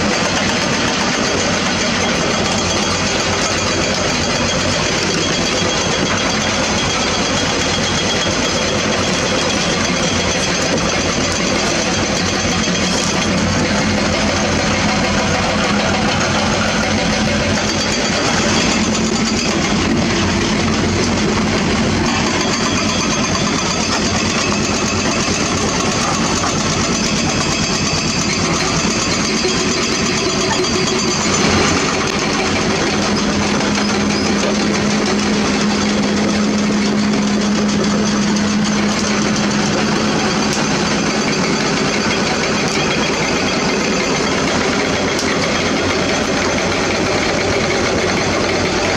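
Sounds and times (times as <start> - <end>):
excavator engine and hydraulics: 0.0 - 48.9.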